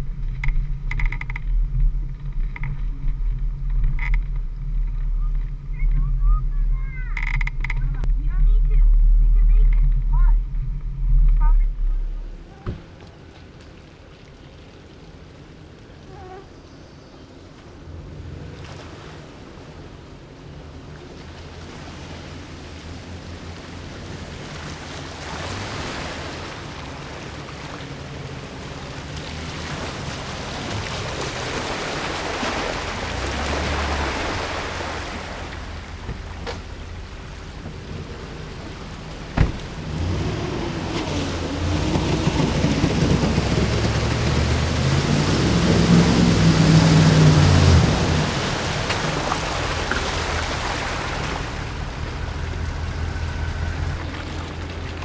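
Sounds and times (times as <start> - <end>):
off-road vehicle passing: 0.0 - 55.0
water and mud sloshing: 0.0 - 55.0
truck engine revving: 23.8 - 55.0.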